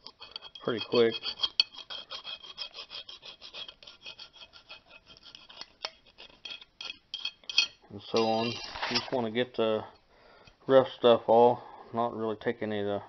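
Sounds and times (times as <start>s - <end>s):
saw blade rasping on metal: 0.0s - 6.6s, 8.1s - 9.2s.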